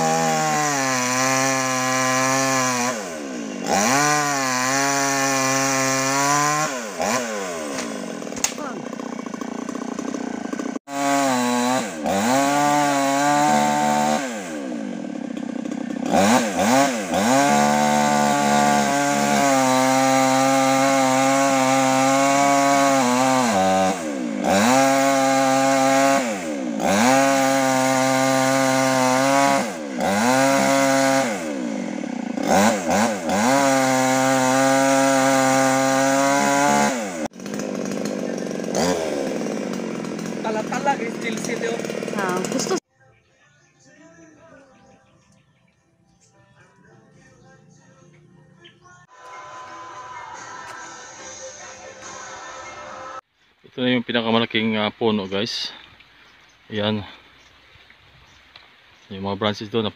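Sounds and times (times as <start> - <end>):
mini chainsaw cutting branches: 0.0 - 42.9.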